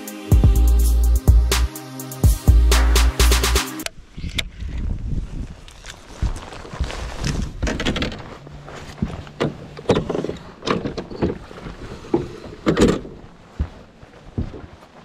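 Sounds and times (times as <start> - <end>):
footsteps on metal boat deck: 6.0 - 15.0.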